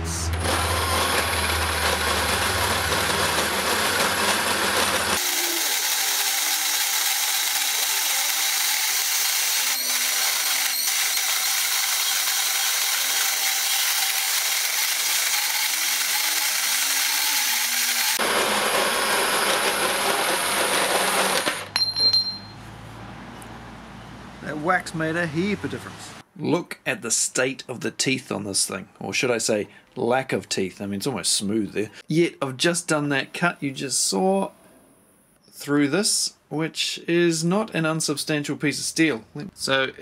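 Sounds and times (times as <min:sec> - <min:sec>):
bandsaw cutting steel: 0:00.2 - 0:21.7.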